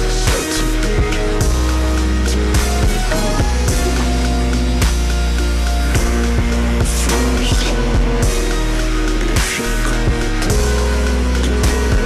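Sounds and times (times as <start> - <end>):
deep sustained bass: 0.0 - 12.0
held synth notes: 0.0 - 12.0
drum hits: 2.6 - 5.2.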